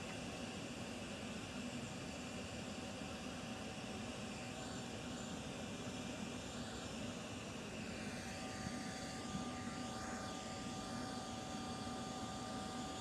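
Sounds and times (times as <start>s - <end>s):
high engine whine: 4.4s - 13.0s.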